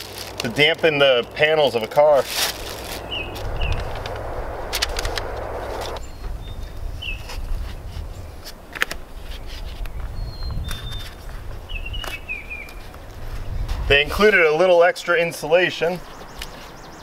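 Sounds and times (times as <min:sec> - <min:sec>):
low steady rumble: 0:02.3 - 0:07.0
small birds chirping: 0:02.6 - 0:07.3, 0:09.8 - 0:13.7.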